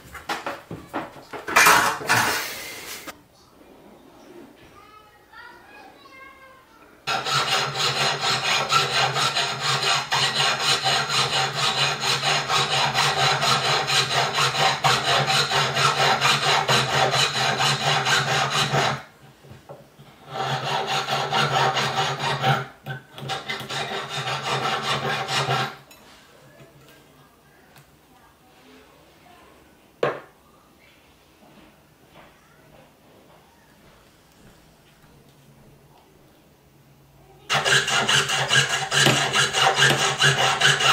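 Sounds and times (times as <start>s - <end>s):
saw rasping through metal wire: 7.1s - 19.1s, 20.2s - 25.8s, 37.5s - 40.9s.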